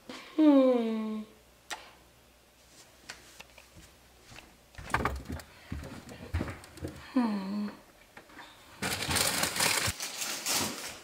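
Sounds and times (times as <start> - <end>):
clicks and knocks: 4.8 - 7.1
refrigerator door opening: 4.8 - 7.1.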